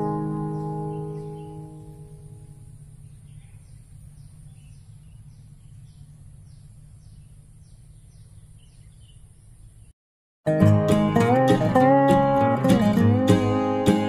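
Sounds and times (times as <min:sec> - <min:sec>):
acoustic guitar music: 0:00.0 - 0:02.7, 0:10.5 - 0:14.0
low steady rumble: 0:00.0 - 0:09.9.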